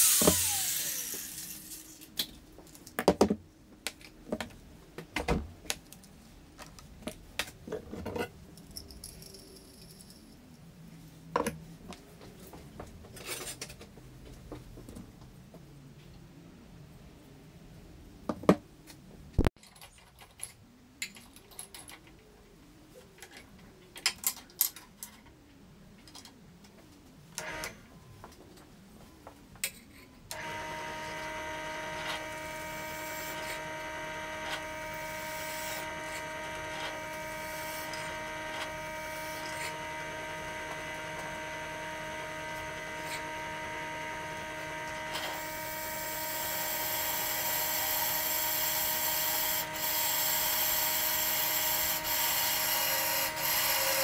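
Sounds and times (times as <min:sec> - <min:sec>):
drill bit cutting metal: 0:00.0 - 0:02.0, 0:30.3 - 0:54.0
drill press motor humming: 0:00.0 - 0:02.0, 0:30.3 - 0:54.0.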